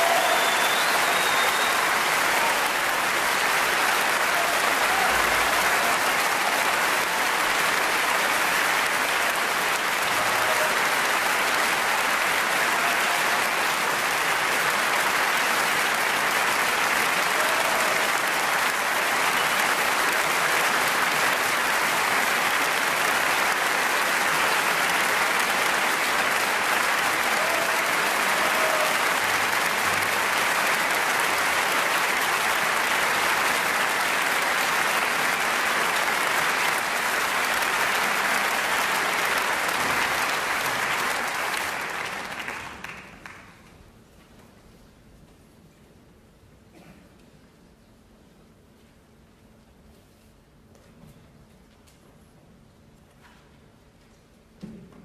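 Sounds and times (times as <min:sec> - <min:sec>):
audience applauding: 0:00.0 - 0:43.8.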